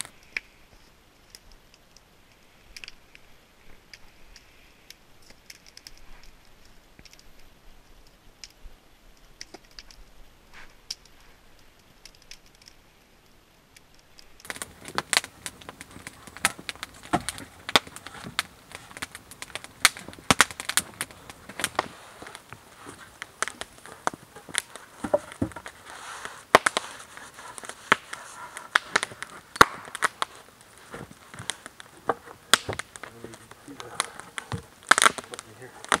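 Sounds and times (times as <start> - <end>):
wood fire crackling: 0.0 - 36.0
loud sharp snaps and clicks: 26.5 - 30.8, 32.5 - 36.0.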